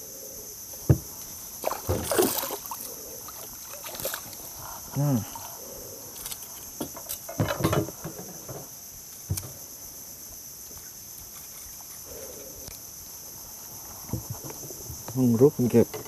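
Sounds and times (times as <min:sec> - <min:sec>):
insects chorus: 0:00.0 - 0:16.0
knocks and thumps on wooden boat: 0:00.8 - 0:02.7, 0:06.8 - 0:08.7, 0:14.1 - 0:14.7.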